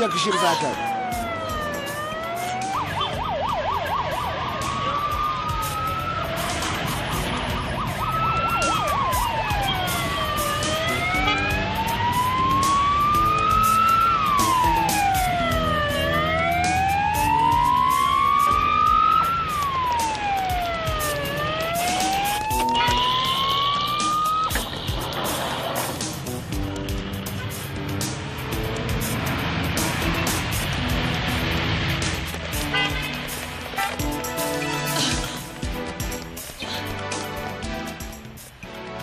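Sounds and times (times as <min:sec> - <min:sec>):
police siren wailing and yelping: 0:00.0 - 0:25.2
traffic rumble: 0:00.0 - 0:39.0.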